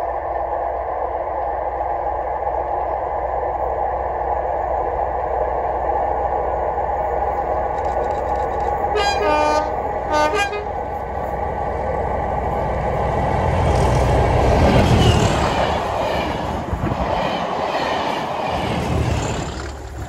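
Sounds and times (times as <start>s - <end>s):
diesel locomotive engine: 0.0s - 20.0s
two-tone locomotive horn: 8.9s - 11.0s.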